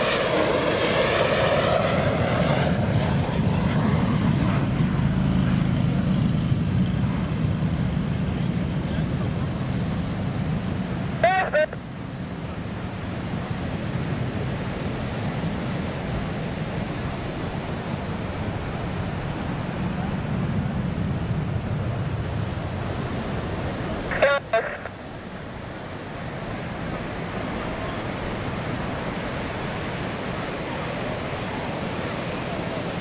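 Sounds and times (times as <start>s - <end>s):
distant jet rumbling: 0.0s - 33.0s
person's voice: 11.2s - 11.8s, 24.1s - 24.9s.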